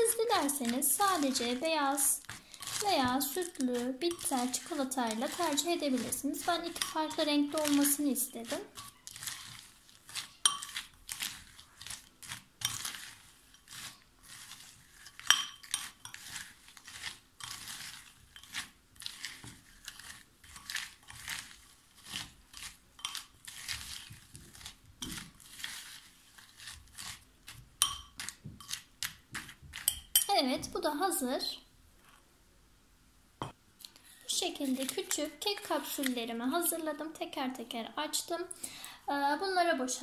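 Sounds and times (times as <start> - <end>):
spoon scraping in bowl: 0.0 - 30.4
spoon clinking against glass: 27.8 - 28.2.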